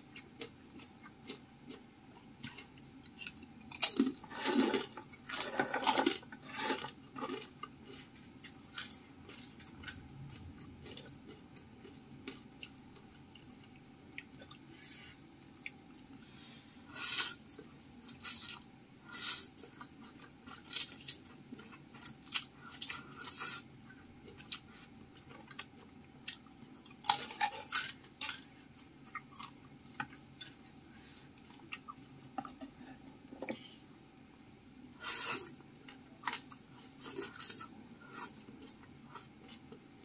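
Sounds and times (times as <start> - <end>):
person slurping and chewing noodles: 16.9 - 25.9.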